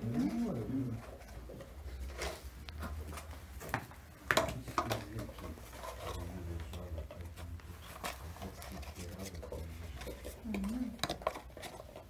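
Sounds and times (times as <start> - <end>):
paper cup rustling and clicking: 0.9 - 12.0.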